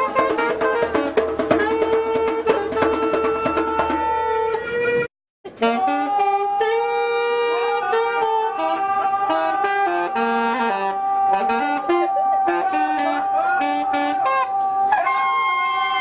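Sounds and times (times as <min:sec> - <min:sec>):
saxophone playing: 0:00.0 - 0:16.0.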